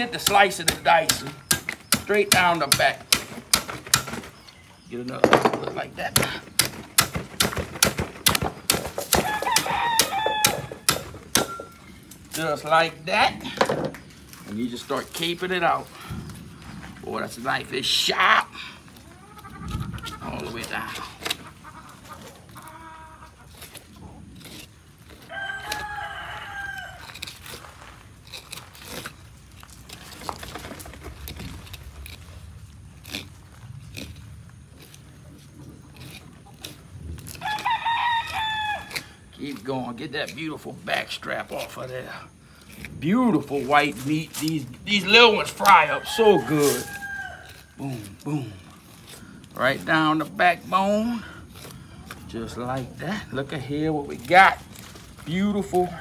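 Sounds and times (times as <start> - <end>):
hatchet chopping knocks: 0.1 - 4.3, 5.2 - 11.7
rooster crowing: 9.1 - 11.6, 25.2 - 27.1, 37.4 - 39.2, 45.7 - 47.7, 55.8 - 56.0.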